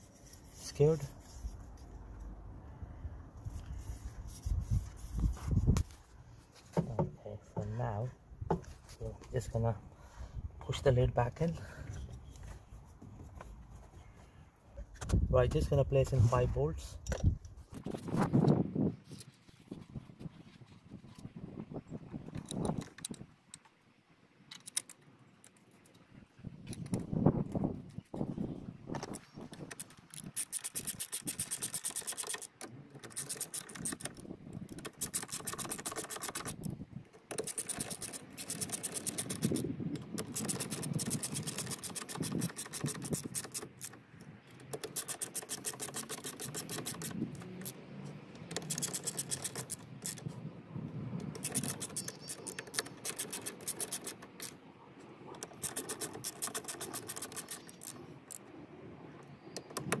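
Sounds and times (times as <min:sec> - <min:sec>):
hand ratchet clicking: 0:29.6 - 0:36.7, 0:37.3 - 0:44.0, 0:44.6 - 0:47.8, 0:48.4 - 0:50.2, 0:51.4 - 0:54.5, 0:55.4 - 0:58.0.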